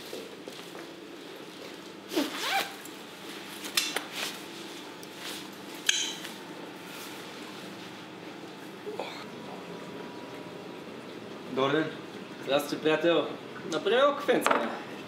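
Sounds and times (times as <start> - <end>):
steady background hum: 0.0 - 15.0
jacket zipper sliding: 2.1 - 2.8
jacket rustling: 2.1 - 5.5.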